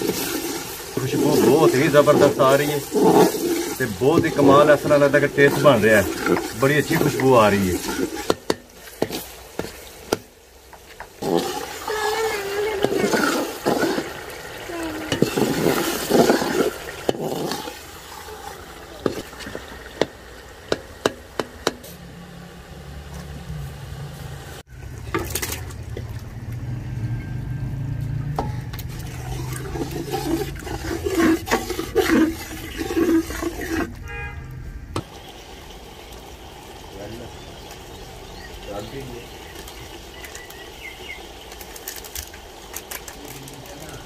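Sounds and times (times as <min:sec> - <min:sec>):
stirring and scraping: 0:00.0 - 0:22.2, 0:28.1 - 0:34.2
food bubbling and sizzling: 0:00.0 - 0:44.0
metal ladle knocking pot: 0:19.0 - 0:21.8, 0:28.3 - 0:29.0.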